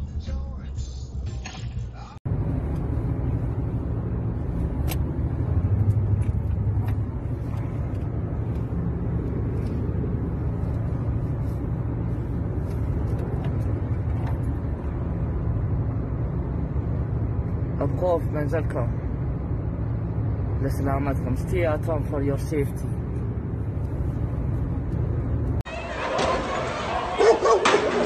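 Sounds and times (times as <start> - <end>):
car driving heard from inside: 2.0 - 28.0.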